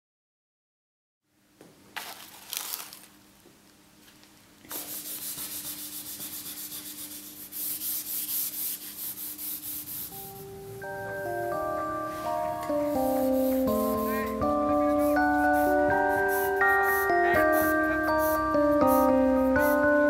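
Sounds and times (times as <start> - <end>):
charcoal scratching on paper: 4.7 - 10.1, 12.9 - 19.9.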